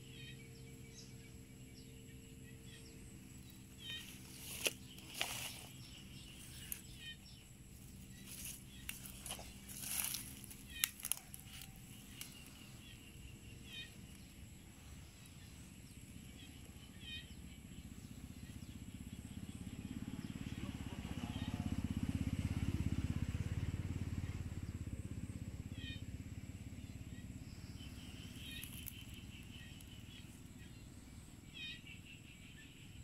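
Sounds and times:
passing vehicle engine: 17.3s - 31.3s.

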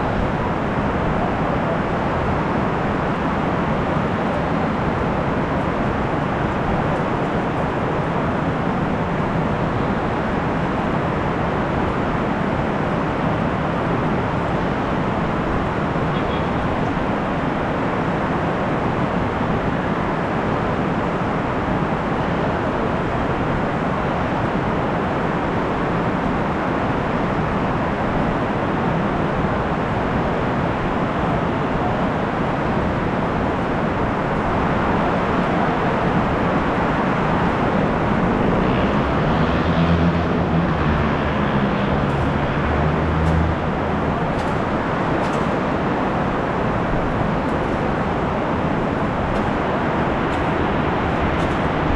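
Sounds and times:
vehicle engine hum: 37.4s - 51.9s.

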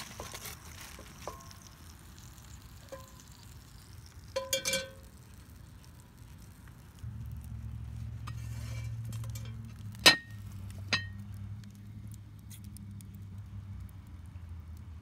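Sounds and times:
pot and lid clinking: 2.8s - 3.3s, 4.4s - 5.1s.

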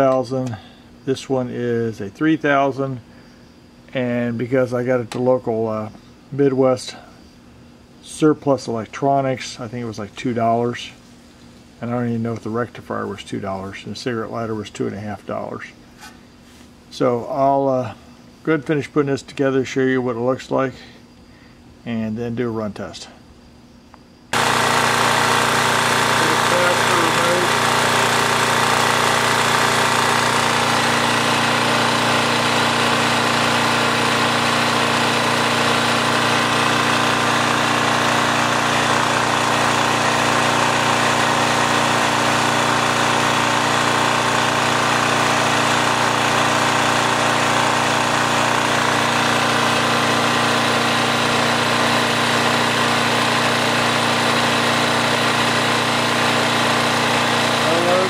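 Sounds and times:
portable generator engine running: 24.4s - 58.0s.

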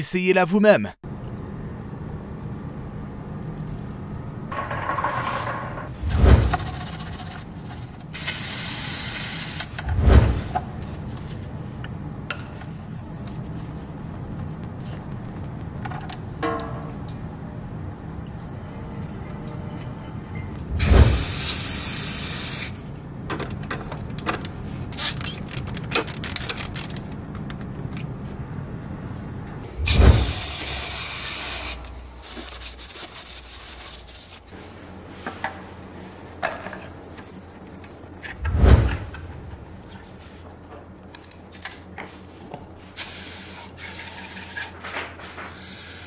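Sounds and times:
loud rushing hiss with thump: 20.8s - 22.4s, 29.8s - 31.7s.

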